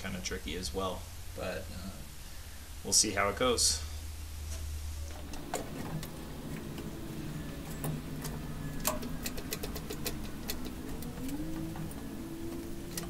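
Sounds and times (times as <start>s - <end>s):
faint low hum: 0.0s - 13.0s
tool clicks and ticks: 7.7s - 13.0s.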